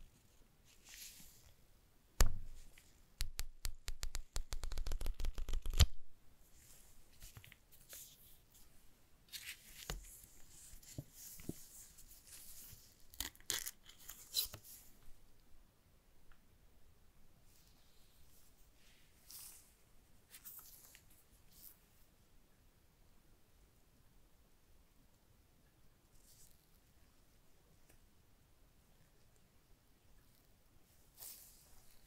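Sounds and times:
crisp paper clicks: 3.2s - 6.0s
paper snap: 3.2s - 6.0s
paper rustling: 9.3s - 14.9s.

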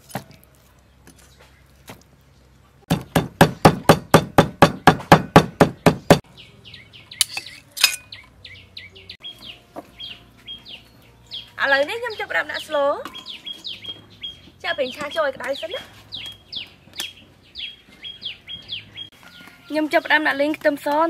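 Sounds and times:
birds chirping: 0.6s - 21.0s
cleaver chopping on wooden board: 2.9s - 6.2s.

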